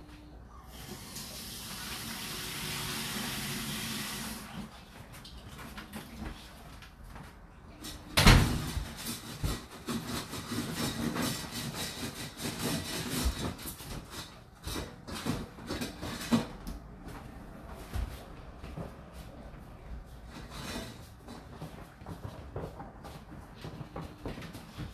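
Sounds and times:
dishwasher water spraying: 0.7s - 4.7s
knocking and clatter: 8.2s - 16.6s.

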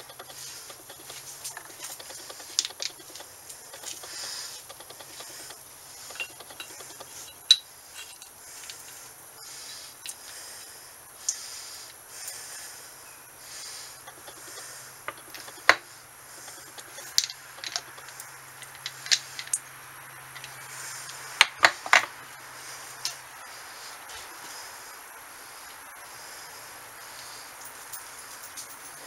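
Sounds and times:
metallic clicks of steel gears: 0.0s - 8.9s.

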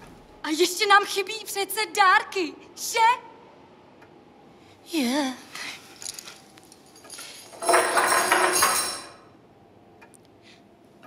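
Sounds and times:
metal chain rattling and clinking: 6.0s - 9.3s.

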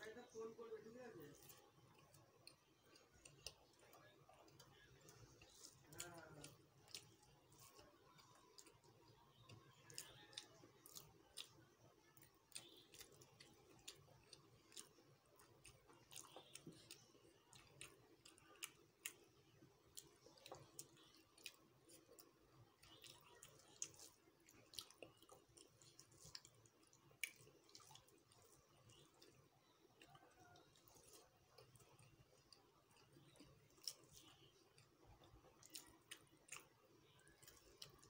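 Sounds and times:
wet clicks and smacks of eating: 1.2s - 38.0s.

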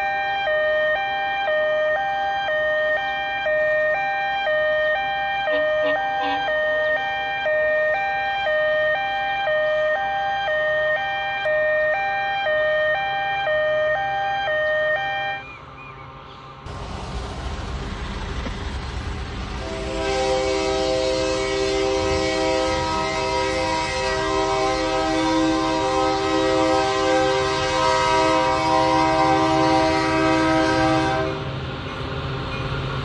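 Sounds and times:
two-tone siren: 0.0s - 16.1s, 19.6s - 31.4s
train rushing rumble: 15.4s - 33.0s
train horn: 19.6s - 31.6s.

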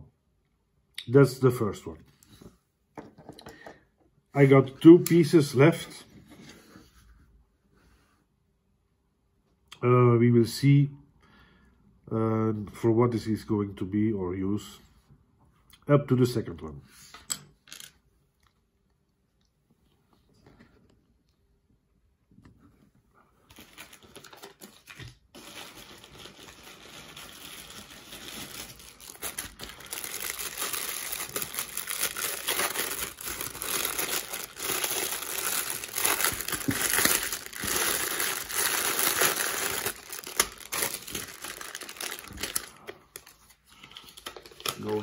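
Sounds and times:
packaging crinkling and tearing: 23.5s - 45.0s.

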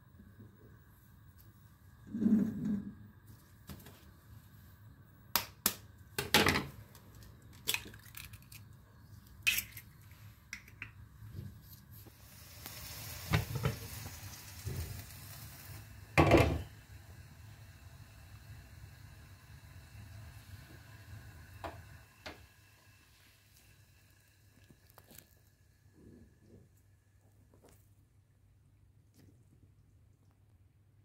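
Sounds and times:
faint hiss: 0.0s - 31.0s
egg cracking into a bowl: 5.3s - 11.1s.

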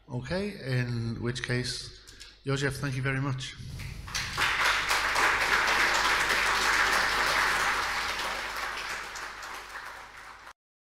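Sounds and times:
audience applauding: 3.7s - 10.6s.

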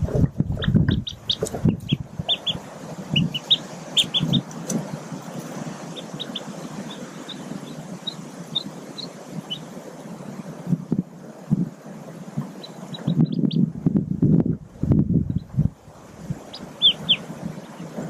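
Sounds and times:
rustling in nest litter: 0.0s - 9.7s
ducklings peeping: 0.0s - 10.6s, 12.4s - 13.8s, 15.2s - 15.7s, 16.4s - 18.0s.

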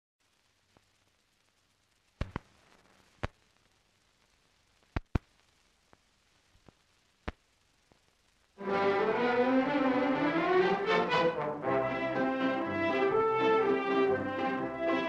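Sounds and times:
film soundtrack hiss and hum: 0.2s - 15.0s
sharp clicks and pops: 0.7s - 8.5s.

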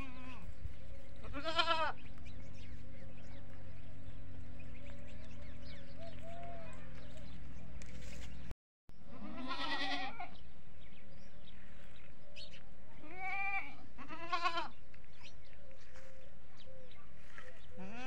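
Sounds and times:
goats bleating: 0.0s - 0.5s, 1.2s - 2.1s, 9.1s - 10.4s, 13.0s - 14.8s.

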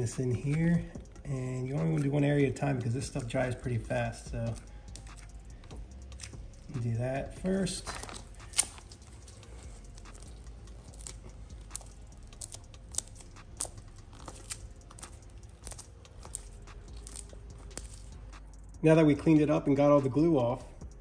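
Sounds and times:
faint clicks and crinkles: 4.4s - 6.8s, 7.7s - 18.5s.

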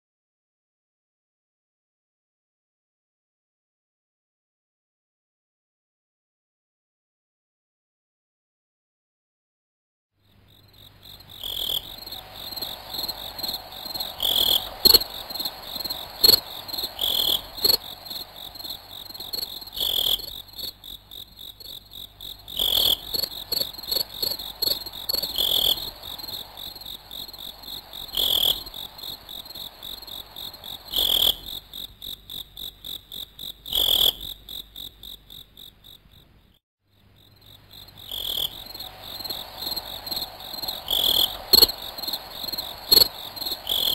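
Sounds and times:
insect chirping trill: 10.2s - 43.9s.

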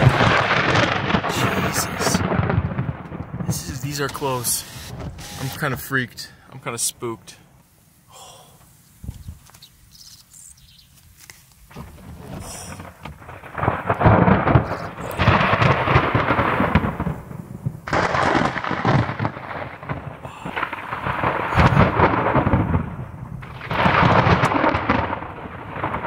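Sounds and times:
close thunder rumbles: 0.0s - 6.4s, 11.7s - 26.0s.

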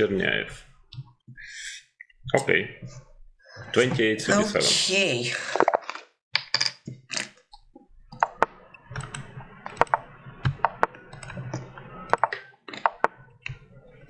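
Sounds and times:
sharp clicks: 7.5s - 13.6s.

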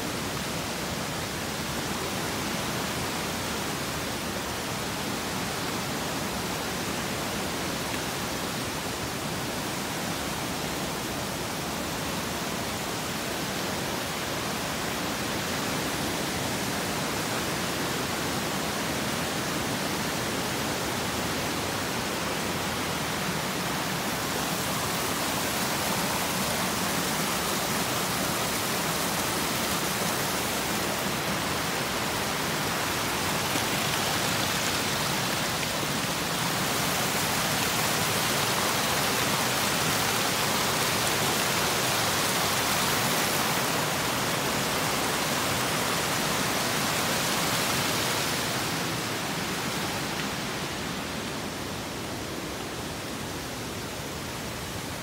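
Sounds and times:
falling water rushing: 0.0s - 55.0s.

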